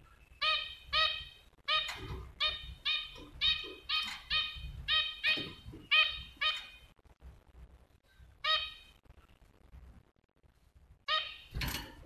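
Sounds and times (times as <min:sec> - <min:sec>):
finch calling: 0:00.4 - 0:06.9.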